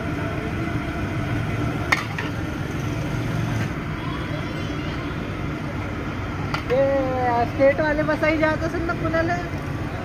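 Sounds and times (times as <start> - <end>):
oil sizzling: 0.0 - 3.8
low traffic rumble: 0.0 - 10.0.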